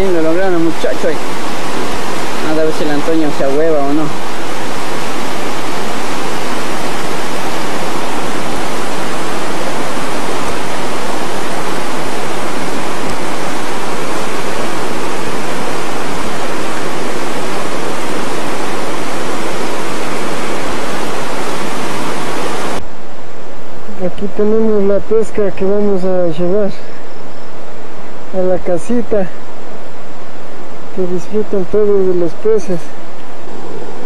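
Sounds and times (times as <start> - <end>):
river water rushing: 0.0 - 22.8.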